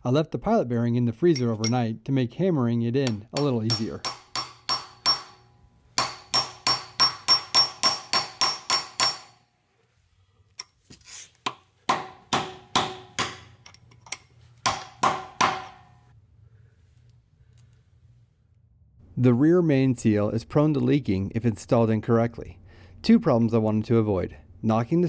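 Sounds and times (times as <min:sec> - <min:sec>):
hammer striking metal with ring: 0:03.0 - 0:09.4, 0:11.5 - 0:13.7, 0:14.6 - 0:16.1.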